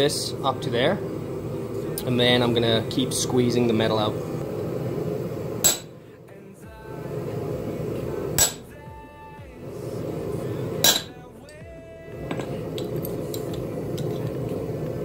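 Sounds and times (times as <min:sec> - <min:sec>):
hammer striking punch on anvil: 0:05.6 - 0:05.9, 0:08.4 - 0:08.7, 0:10.8 - 0:11.2.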